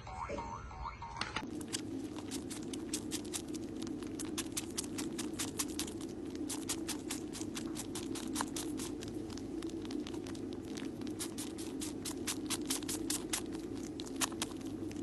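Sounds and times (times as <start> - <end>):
kitten purring: 1.4 - 15.0
kitten suckling clicks: 1.6 - 15.0.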